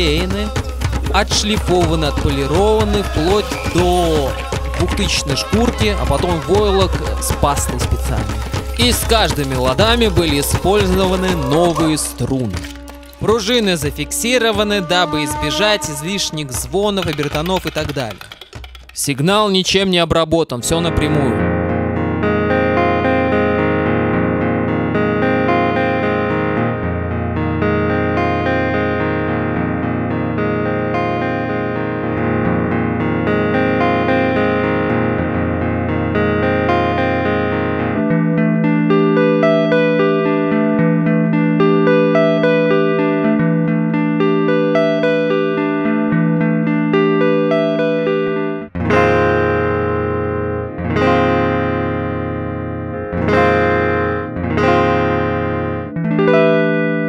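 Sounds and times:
clean electric guitar notes: 10.2s - 16.8s, 21.3s - 57.0s.

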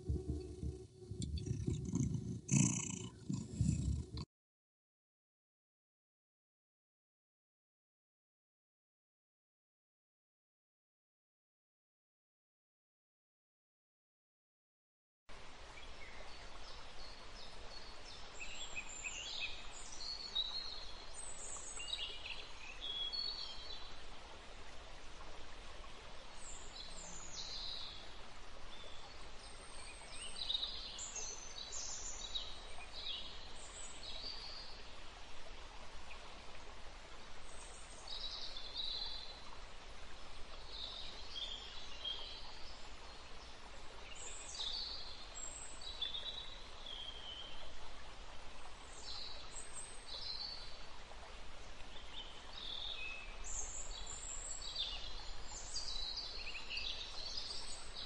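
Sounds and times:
small birds chirping: 0.0s - 4.2s
outdoor background hiss: 15.3s - 58.0s.

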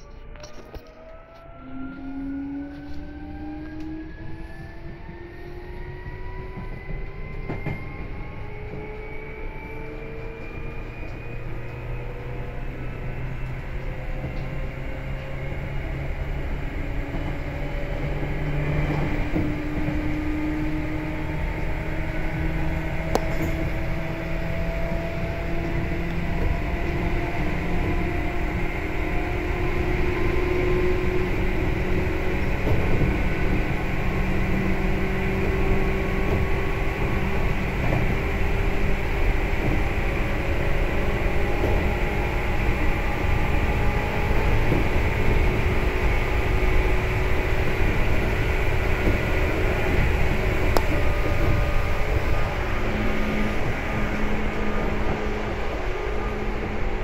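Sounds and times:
train motors whining: 0.0s - 57.0s
wheels rumbling on rails: 0.0s - 57.0s.

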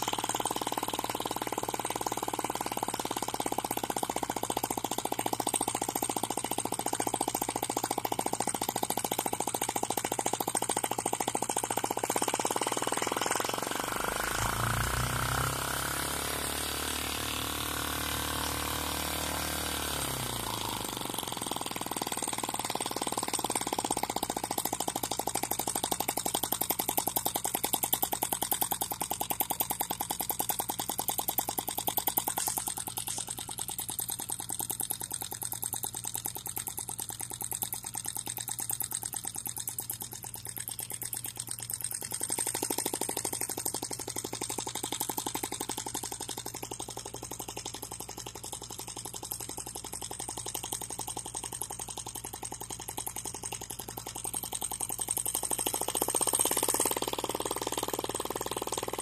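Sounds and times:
model engine running: 0.0s - 59.0s
steady low hum: 10.7s - 21.4s.

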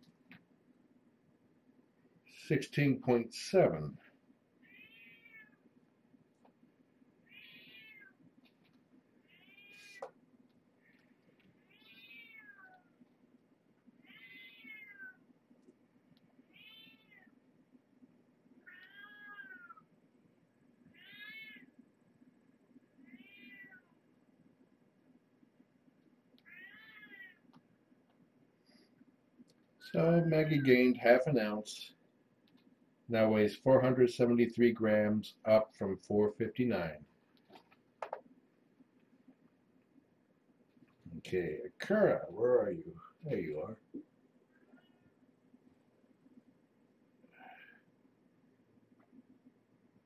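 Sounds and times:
kitten meowing: 4.6s - 5.6s, 7.3s - 8.1s, 11.7s - 12.9s, 14.1s - 15.2s, 16.5s - 17.3s, 18.7s - 19.8s, 21.0s - 21.6s, 23.1s - 23.9s, 26.5s - 27.3s.

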